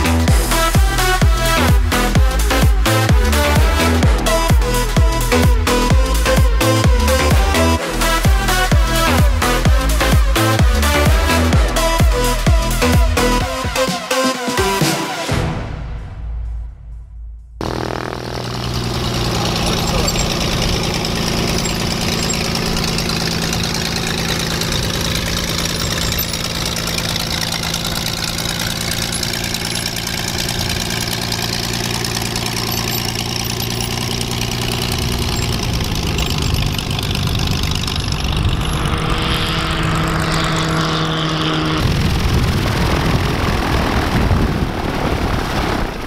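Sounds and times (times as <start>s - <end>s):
propeller aircraft engines: 17.6s - 46.0s.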